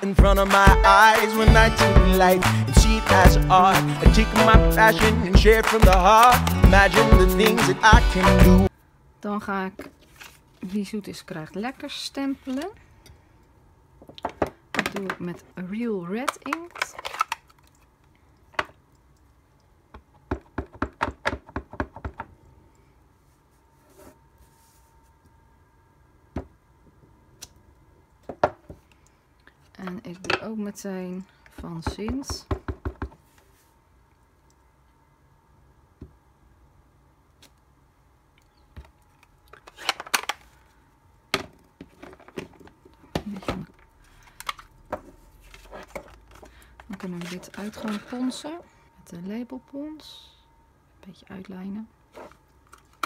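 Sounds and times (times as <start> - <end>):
cardstock rustling: 45.0 - 48.6.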